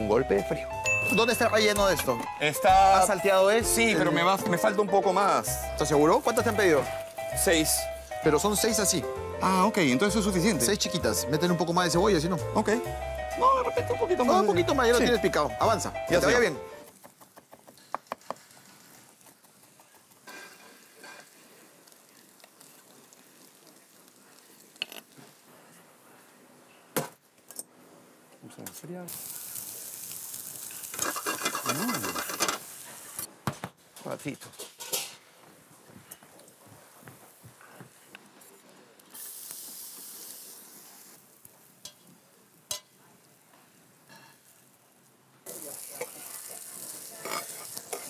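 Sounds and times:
meat sizzling in a skillet: 1.1 - 12.0, 16.1 - 25.7, 29.0 - 33.3, 38.0 - 48.0.

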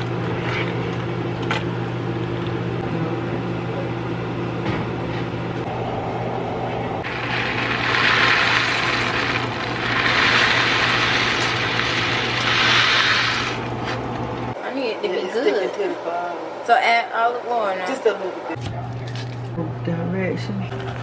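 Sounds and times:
steady low hum: 0.0 - 21.0
dry pasta pouring into water: 7.0 - 13.7.

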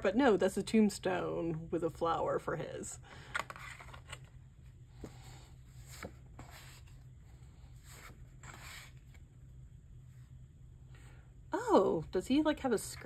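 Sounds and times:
paper cards rustling and scraping: 3.2 - 9.3.

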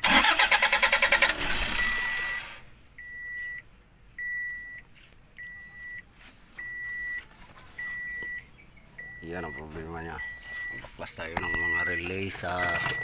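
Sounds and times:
diesel engine starter cranking: 0.0 - 2.6
high-pitched electronic beep: 11.4 - 13.0.

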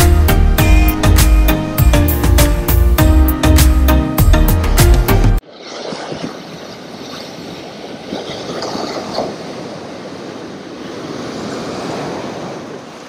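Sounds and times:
background music: 0.0 - 5.4
ocean waves washing: 5.4 - 13.0.

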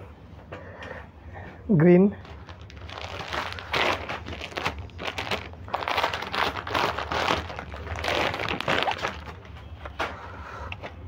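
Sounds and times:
plastic bag crinkling: 2.2 - 9.5.

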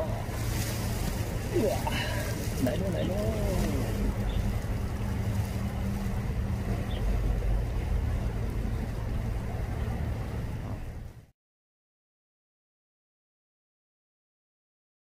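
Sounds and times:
low rumble with faint hum: 0.0 - 11.3.

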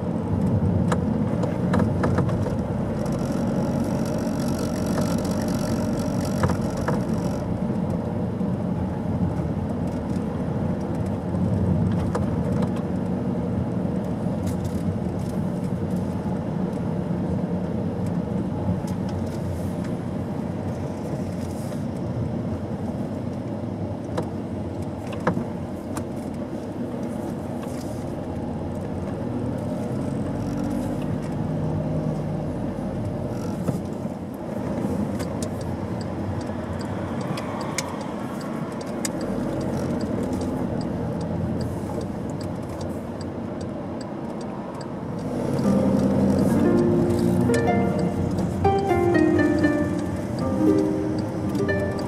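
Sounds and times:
car engine and road noise: 0.0 - 52.0
light regular ticking: 35.2 - 52.0.

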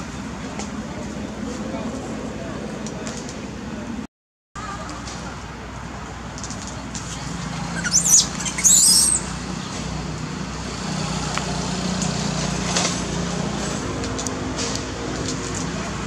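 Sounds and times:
baby monkey squealing: 7.7 - 9.3.

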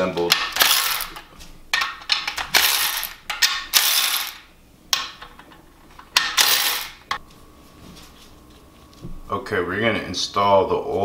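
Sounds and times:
ratchet wrench clicking: 2.3 - 4.4, 6.2 - 7.0.

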